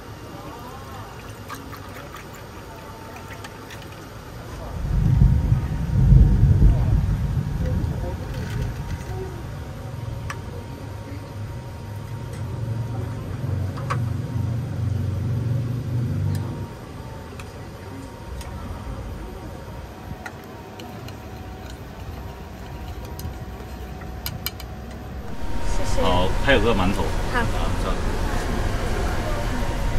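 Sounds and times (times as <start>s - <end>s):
low rumble: 4.7s - 9.0s, 25.2s - 29.9s.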